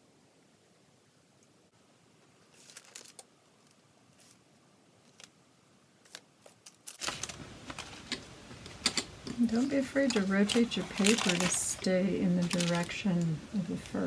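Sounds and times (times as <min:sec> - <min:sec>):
paper rustling: 0:02.4 - 0:04.4, 0:05.0 - 0:05.3, 0:06.0 - 0:14.0.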